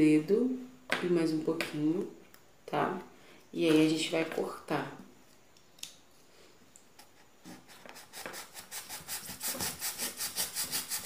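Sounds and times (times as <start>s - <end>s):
knife sawing foam: 8.0s - 11.0s.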